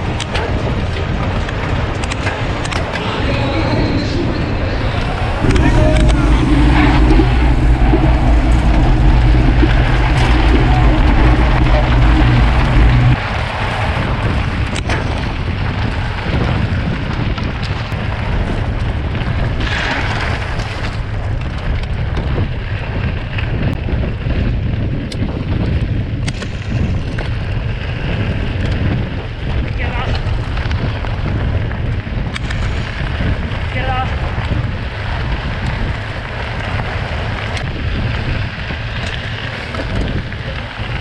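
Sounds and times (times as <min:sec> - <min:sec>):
wind rumbling on microphone: 0:00.0 - 0:41.0
loud low hum: 0:02.0 - 0:15.1
bike tyres on gravel: 0:04.3 - 0:41.0.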